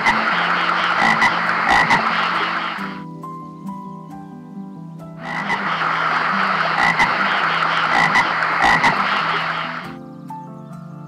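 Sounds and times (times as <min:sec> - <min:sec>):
frogs croaking: 0:00.0 - 0:03.2, 0:04.6 - 0:10.2
soft background music: 0:00.0 - 0:11.0.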